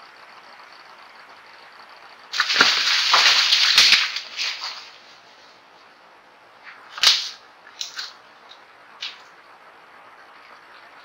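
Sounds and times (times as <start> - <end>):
animal crashing through dry leaves: 2.3 - 5.2
twig snapping: 7.0 - 8.2.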